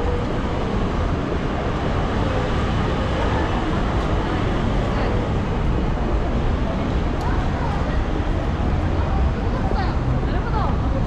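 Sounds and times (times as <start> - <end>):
faint voices of passers-by: 0.0 - 11.0
road traffic: 0.0 - 11.0.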